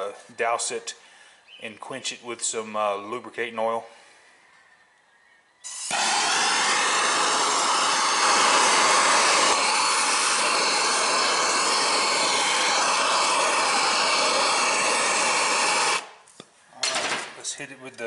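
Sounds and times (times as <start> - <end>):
torch flame hissing: 5.7 - 16.2.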